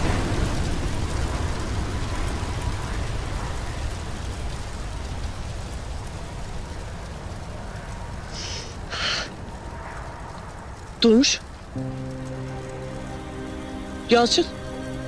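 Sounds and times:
deep explosion rumble: 0.0s - 6.1s.

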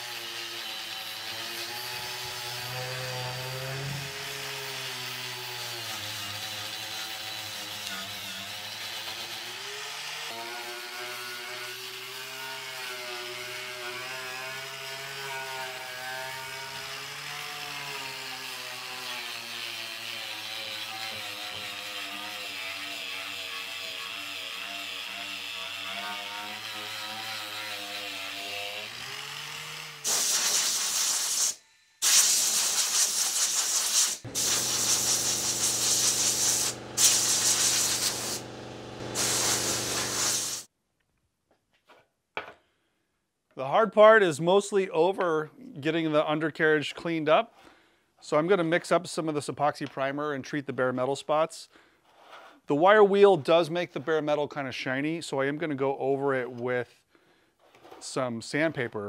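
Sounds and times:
power tool wire brush on metal: 0.0s - 40.7s
compressed air blowgun hissing: 30.0s - 40.7s.

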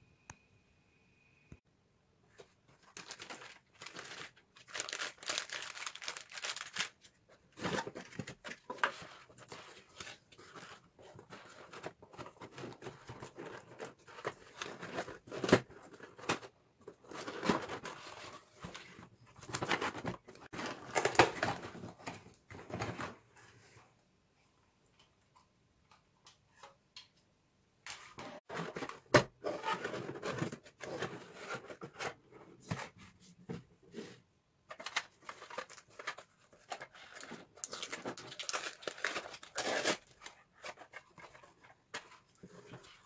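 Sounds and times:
cardboard and plastic bag rustling: 2.4s - 23.4s.

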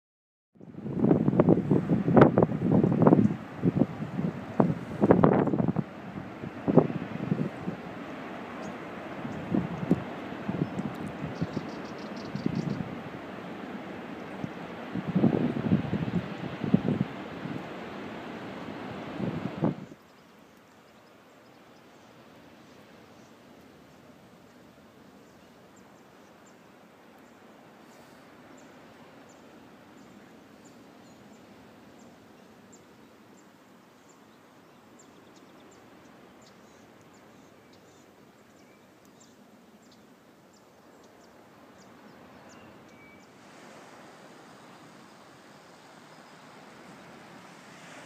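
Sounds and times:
steady soft hiss: 1.4s - 48.0s
small birds chirping: 8.6s - 12.9s, 19.9s - 43.4s.

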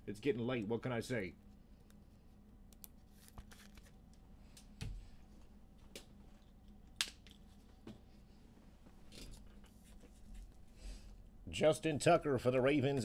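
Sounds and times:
trading cards handled: 2.8s - 4.7s.

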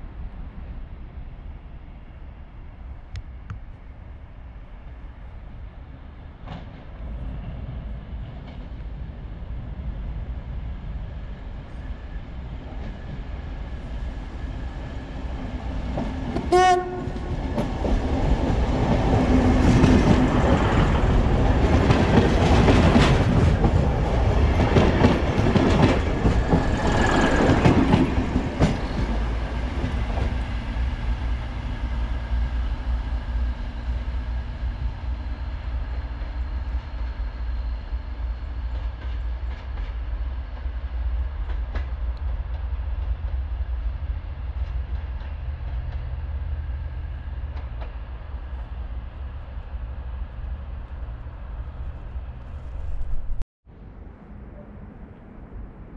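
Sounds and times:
train rumbling past: 0.0s - 55.9s
train horn blast: 16.5s - 17.5s.

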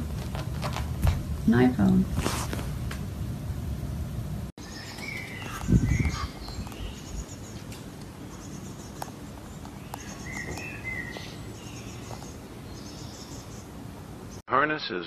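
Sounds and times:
small birds chirping: 4.6s - 14.4s.

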